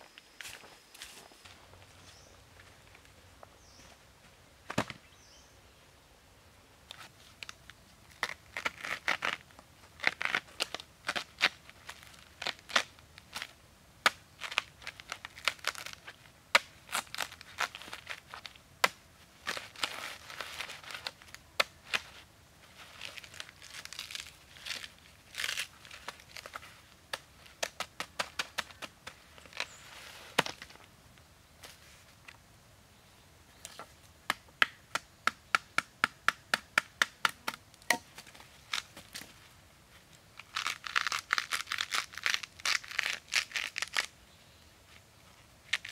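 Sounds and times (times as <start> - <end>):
bamboo cracking and tearing: 6.9 - 30.9, 33.6 - 39.4, 40.1 - 44.2, 45.6 - 45.9
bamboo pole knocking on ground: 34.3 - 38.2.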